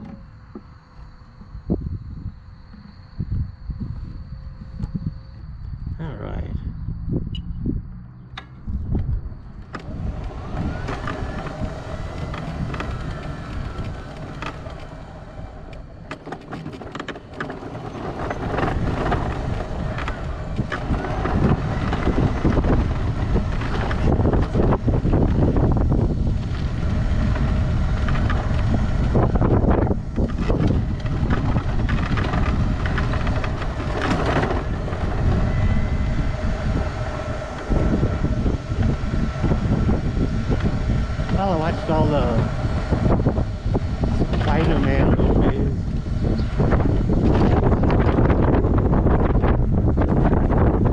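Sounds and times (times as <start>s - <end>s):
faint electric motor whine: 0.0s - 50.9s
wheels rumbling over asphalt: 0.0s - 50.9s
wheels knocking over cracks: 8.4s - 39.6s.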